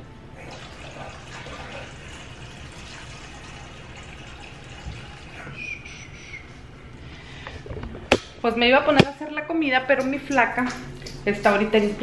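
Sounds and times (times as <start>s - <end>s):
water running into metal bowl: 0.4s - 5.6s.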